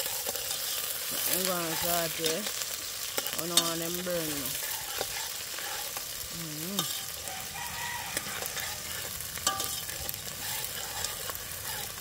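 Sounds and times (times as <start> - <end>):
seasoning sizzling in hot oil: 0.0 - 12.0
spoon stirring and knocking pot: 8.3 - 11.9.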